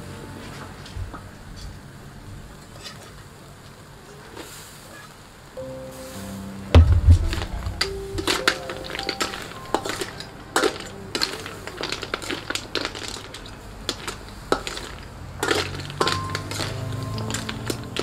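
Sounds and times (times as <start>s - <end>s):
metal ladle scraping a wok: 9.2s - 18.0s.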